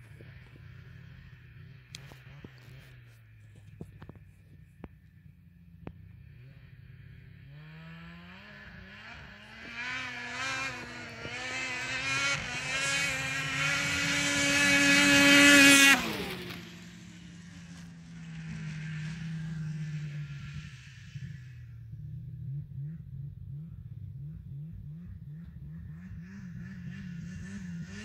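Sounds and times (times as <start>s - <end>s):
snowmobile passing by: 0.0s - 28.0s.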